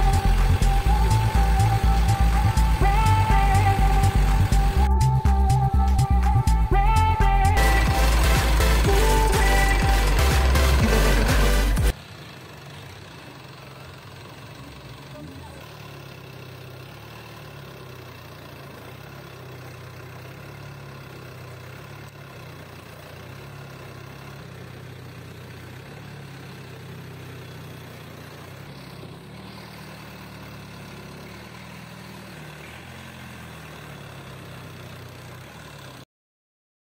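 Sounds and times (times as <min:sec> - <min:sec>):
water rushing along hull: 0:00.0 - 0:04.8
boat engine running: 0:00.0 - 0:36.0.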